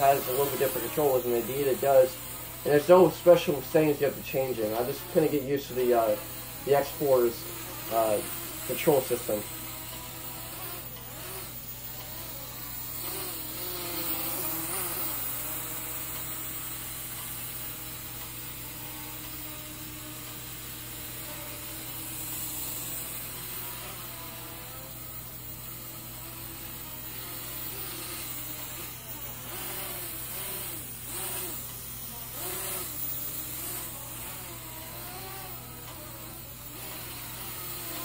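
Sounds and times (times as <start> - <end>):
quadcopter motors whining: 0.0 - 38.0.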